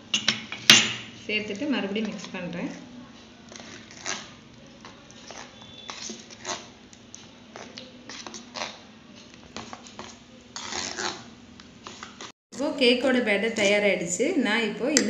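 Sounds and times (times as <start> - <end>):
spoon stirring batter in bowl: 0.1 - 12.3
spoon clinking and scraping bowl: 5.3 - 6.7.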